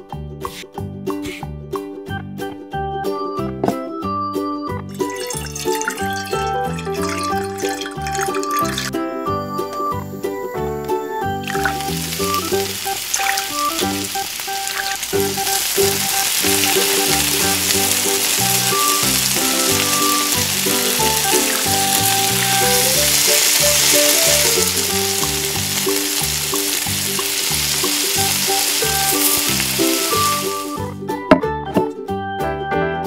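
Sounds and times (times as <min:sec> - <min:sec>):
background music: 0:00.0 - 0:33.0
hot oil sizzling and bubbling: 0:04.9 - 0:09.5, 0:10.6 - 0:30.9.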